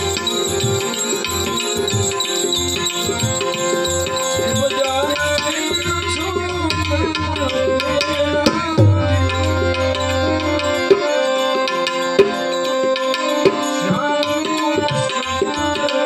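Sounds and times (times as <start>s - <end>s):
harmonium chords: 0.0s - 16.0s
man singing: 4.4s - 10.1s, 13.7s - 16.0s
tabla strokes: 6.6s - 15.6s.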